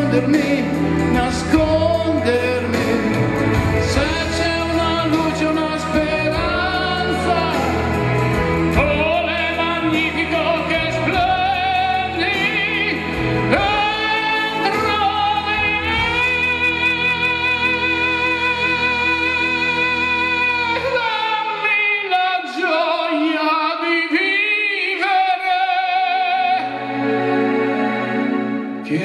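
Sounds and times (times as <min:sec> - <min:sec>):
instrumental backing track: 0:00.0 - 0:22.9.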